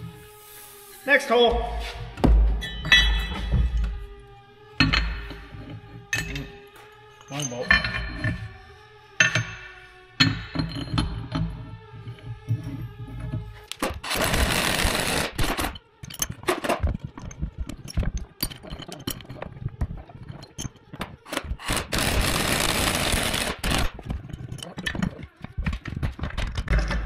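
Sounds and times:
metal parts clanking: 2.6s - 3.9s, 4.8s - 8.5s, 9.2s - 11.6s, 15.4s - 21.9s, 23.6s - 27.0s.

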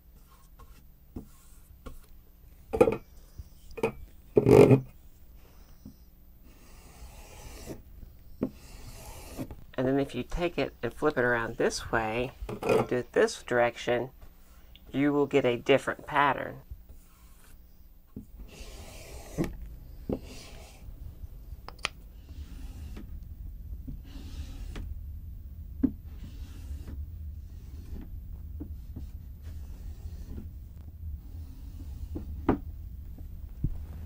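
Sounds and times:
steady low hum: 0.0s - 34.0s
graining tool scraping through paint: 6.5s - 9.5s, 16.9s - 17.8s, 18.4s - 19.5s.

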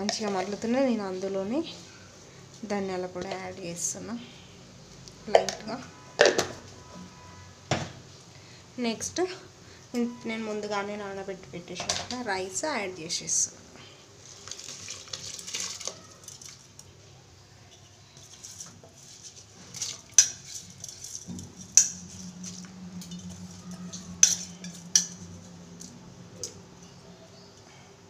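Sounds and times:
rice pouring into water: 14.2s - 16.7s
utensils clinking on metal pot: 14.4s - 16.9s, 17.6s - 27.0s
steady low hum: 20.6s - 28.0s.

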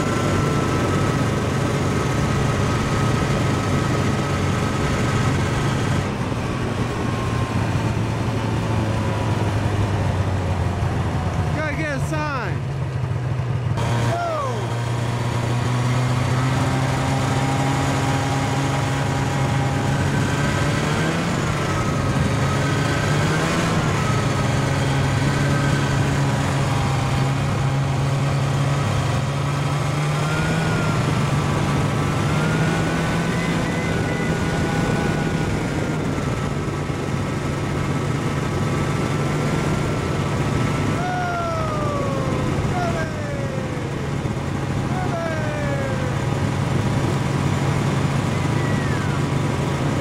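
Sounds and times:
snowmobile engine running: 0.0s - 50.0s.

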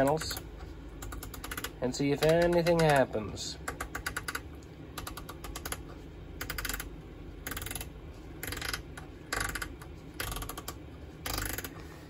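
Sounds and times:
rotary selector clicking: 1.0s - 3.1s, 6.4s - 11.8s.

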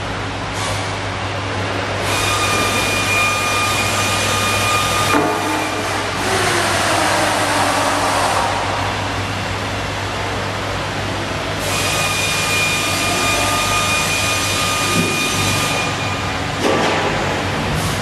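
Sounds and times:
diesel generator running: 0.0s - 18.0s.

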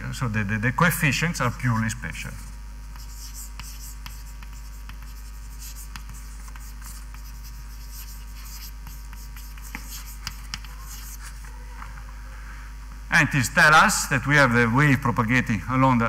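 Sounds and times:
steady low hum: 0.0s - 16.0s
pen scratching while writing: 2.9s - 11.4s.

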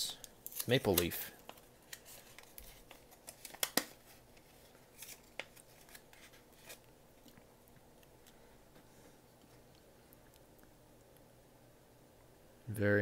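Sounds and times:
paper envelope rustling: 0.6s - 6.9s.

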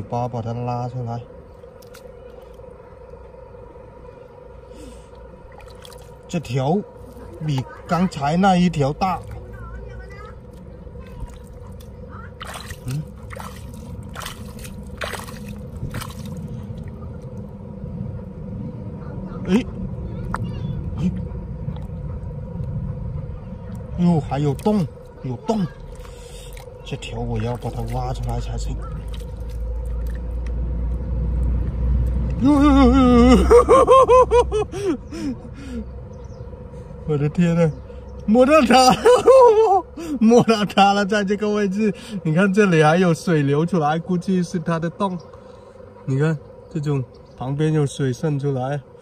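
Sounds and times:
low steady rumble: 0.0s - 49.0s
sharp wet squishes: 1.6s - 2.8s, 5.1s - 6.3s, 10.5s - 17.5s, 24.4s - 32.4s
hand squelching through wet mud: 5.5s - 6.2s, 11.0s - 16.9s, 25.7s - 30.6s
man laughing: 32.4s - 35.8s, 38.6s - 40.7s.

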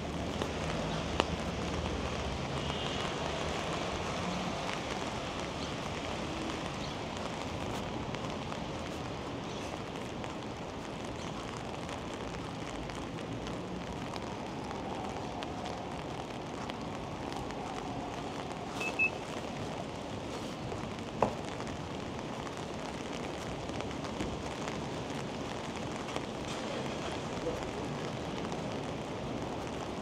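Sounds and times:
rain hissing: 0.0s - 30.0s
traffic on wet street: 0.0s - 30.0s
short high beeps: 18.8s - 19.2s.

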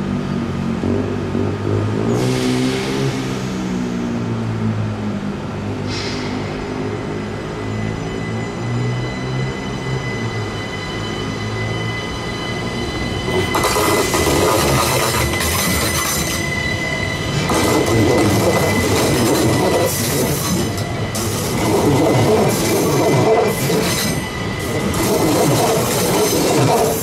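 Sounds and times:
steady high squeal: 5.9s - 27.0s
train wheels clattering on rails: 13.2s - 27.0s.

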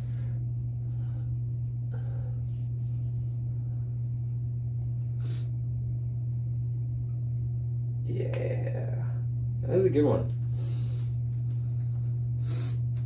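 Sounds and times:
soft breathing: 0.0s - 4.4s
steady low hum: 0.0s - 13.0s.

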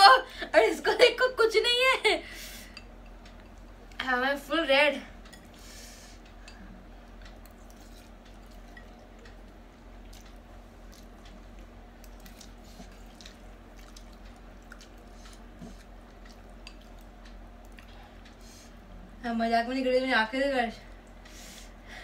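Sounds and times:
steady low hum: 0.0s - 22.0s
wet chewing and slurping: 7.2s - 18.4s.

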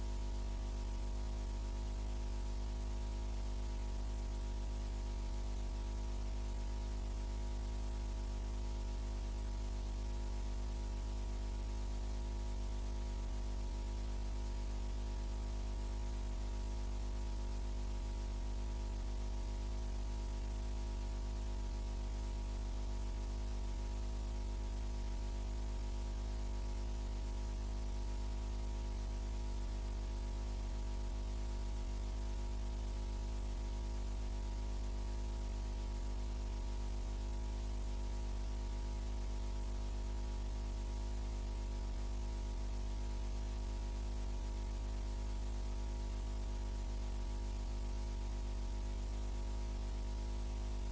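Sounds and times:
electrical hum: 0.0s - 26.9s
constant hiss: 0.0s - 50.9s.

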